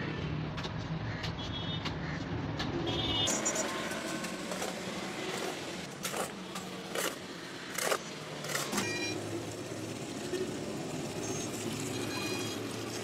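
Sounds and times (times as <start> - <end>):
shovel scraping gravel: 4.4 - 8.8.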